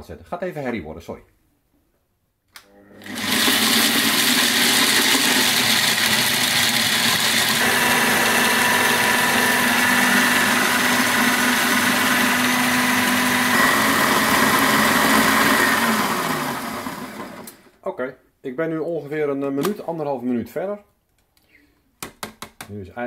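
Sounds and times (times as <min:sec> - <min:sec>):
food processor whirring: 0:02.6 - 0:17.8.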